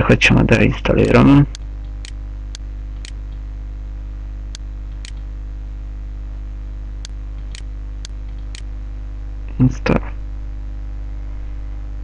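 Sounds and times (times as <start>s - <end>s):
low electrical hum: 0.0s - 12.0s
computer mouse clicking: 1.0s - 3.4s, 4.5s - 5.3s, 7.0s - 8.7s.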